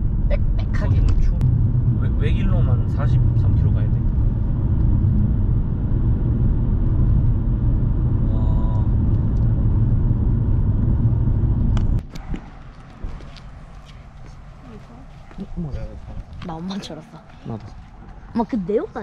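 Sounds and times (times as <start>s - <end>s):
car interior road rumble: 0.0s - 19.0s
open-air ambience: 3.9s - 19.0s.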